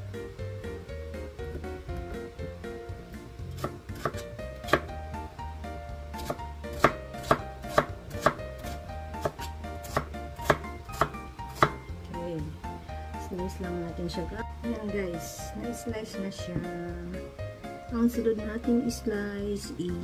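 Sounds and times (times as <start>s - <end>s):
background music: 0.0s - 20.0s
knife chopping on cutting board: 3.5s - 4.9s, 6.2s - 11.8s.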